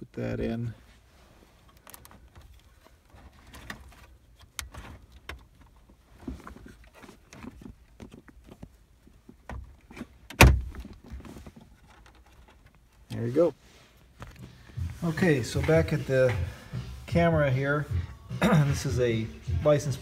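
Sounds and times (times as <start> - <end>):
plastic and metal clicks and scraping: 1.6 - 13.2.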